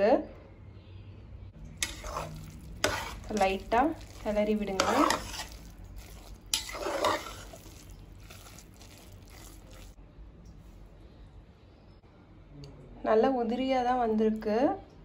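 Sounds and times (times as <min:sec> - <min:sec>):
ladle scraping rice in metal pot: 0:01.8 - 0:10.0.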